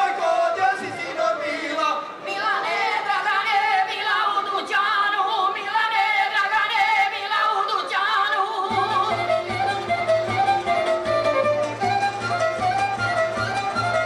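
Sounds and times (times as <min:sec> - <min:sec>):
women singing folk song: 0:00.0 - 0:11.6
folk string band with plucked lute: 0:08.6 - 0:14.0.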